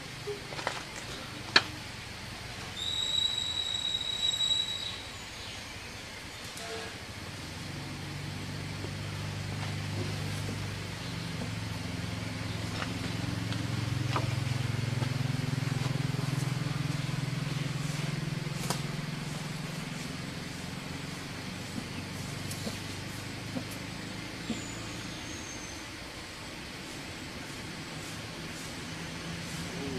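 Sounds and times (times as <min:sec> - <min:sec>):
elephant low rumbling call: 0:06.4 - 0:29.9.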